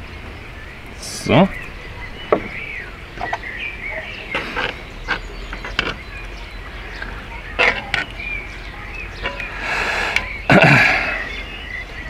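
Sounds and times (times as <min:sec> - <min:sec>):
small birds chirping: 0:00.0 - 0:12.0
metal spoon scraping a pot: 0:09.2 - 0:10.4.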